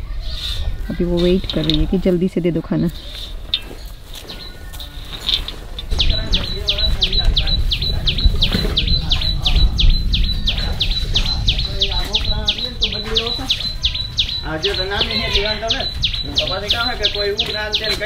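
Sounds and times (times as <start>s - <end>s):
bird chirping: 0.2s - 18.0s
low rumble: 5.1s - 14.4s.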